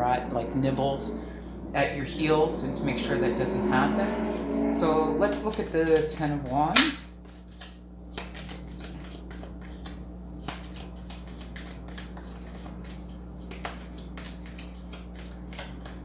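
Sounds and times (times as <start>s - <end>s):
low hum: 0.0s - 10.3s
cards being shuffled: 5.8s - 16.0s.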